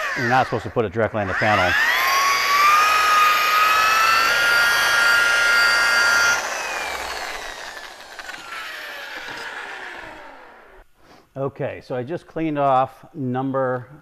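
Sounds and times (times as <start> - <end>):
electric rotary buffer whine: 0.0 - 10.8.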